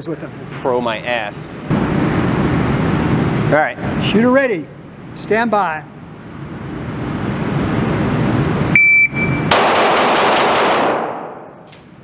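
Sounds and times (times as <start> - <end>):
shot timer beep: 8.7 - 9.5
rapid pistol shots: 9.5 - 11.5.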